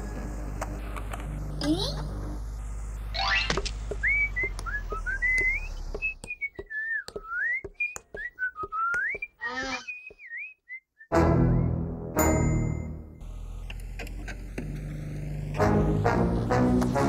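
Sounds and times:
cartoon cat whistling: 0:08.8 - 0:10.4
warbling vocal squeak: 0:09.2 - 0:10.2.

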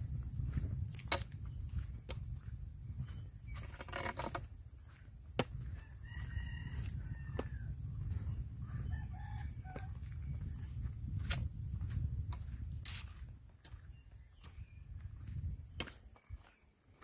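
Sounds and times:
footstep clicks: 0:00.4 - 0:06.6, 0:09.7 - 0:17.0
faint rooster crowing: 0:05.6 - 0:10.7.

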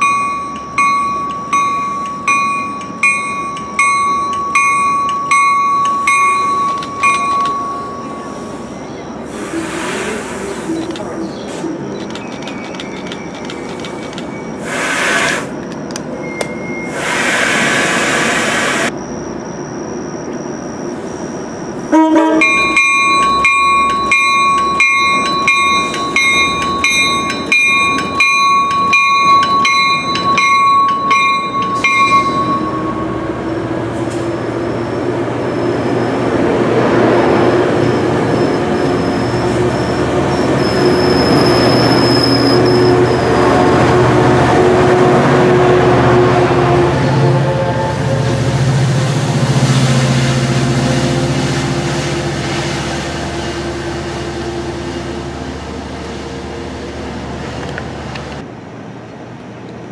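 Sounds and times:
railway bell ringing: 0:00.0 - 0:09.3, 0:16.1 - 0:17.0, 0:21.9 - 0:57.6
diesel locomotive engine: 0:00.0 - 0:59.9
train wheel squeal: 0:01.3 - 0:15.5, 0:16.1 - 0:56.5
air hiss bursts: 0:08.4 - 0:10.9, 0:14.6 - 0:15.6, 0:16.9 - 0:18.9.

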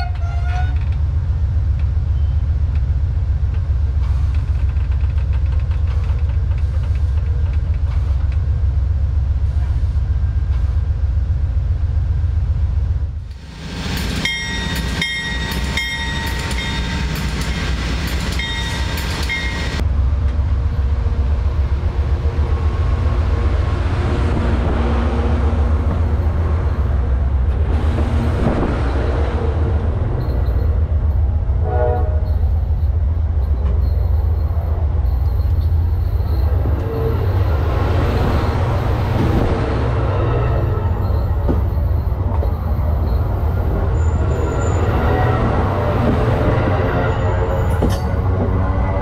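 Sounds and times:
train wheels rumbling on rail: 0:00.0 - 0:49.0
wheel squeal: 0:40.1 - 0:45.4.

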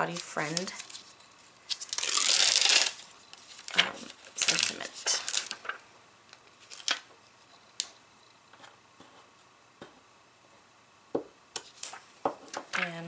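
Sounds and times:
plastic packaging crinkling: 0:00.0 - 0:07.1.

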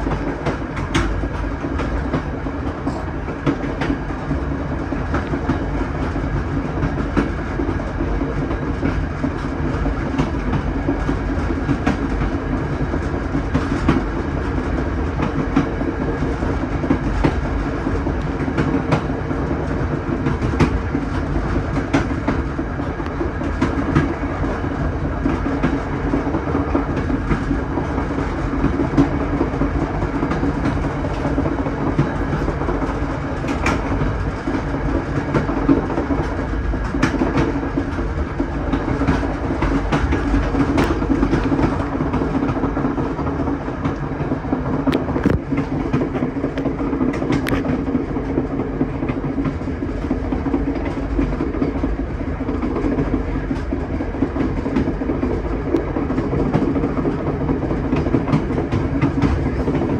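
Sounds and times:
train wheels rumbling and rattling: 0:00.0 - 0:59.9
wheels clicking over rail joints: 0:00.0 - 0:59.9.

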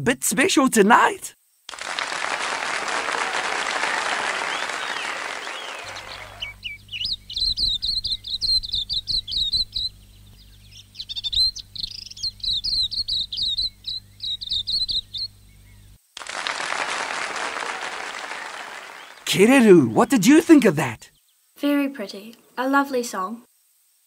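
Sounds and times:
applause: 0:01.7 - 0:06.6, 0:16.2 - 0:20.0
bird singing warbling chirps: 0:04.8 - 0:16.0.

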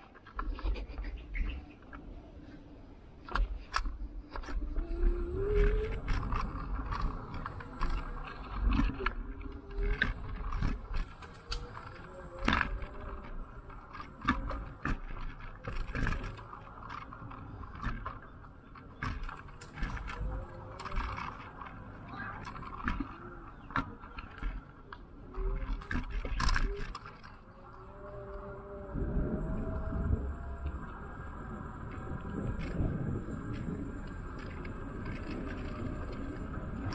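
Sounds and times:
scooter rattling over bumps: 0:03.2 - 0:36.9
low rumble: 0:27.6 - 0:36.9.

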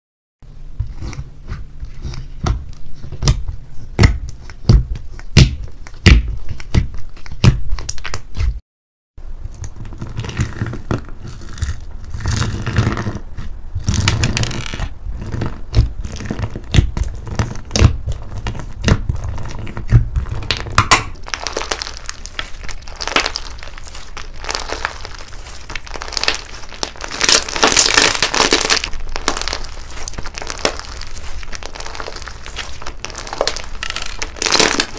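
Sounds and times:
slime crackling and squishing: 0:00.9 - 0:08.6, 0:09.5 - 0:34.9
slime clicking and popping: 0:19.9 - 0:34.9.

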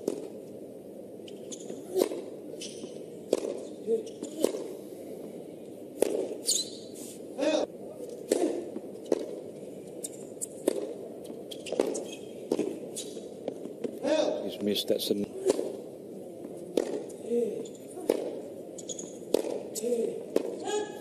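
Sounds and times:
racket hitting tennis ball: 0:00.0 - 0:00.4, 0:01.5 - 0:04.8, 0:06.0 - 0:06.8, 0:08.1 - 0:09.5, 0:10.1 - 0:14.2, 0:15.3 - 0:15.9, 0:16.5 - 0:21.0.

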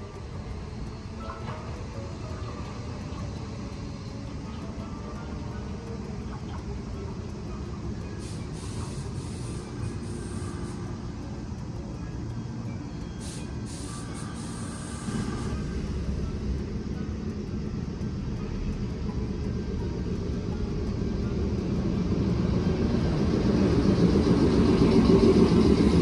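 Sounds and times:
train rumbling: 0:00.0 - 0:26.0
short hisses of air: 0:08.2 - 0:10.8, 0:13.2 - 0:15.7.

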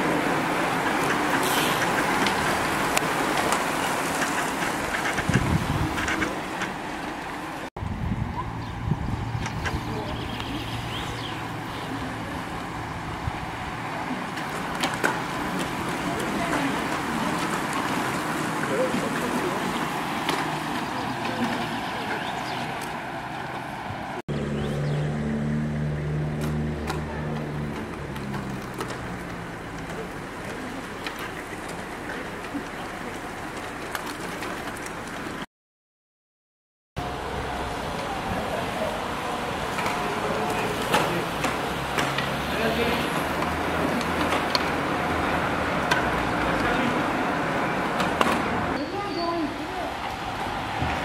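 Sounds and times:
bicycle tyres hissing: 0:00.0 - 0:07.6
engine hum: 0:00.0 - 0:35.5, 0:37.0 - 0:51.0
bicycle tyre hiss: 0:01.3 - 0:02.8.

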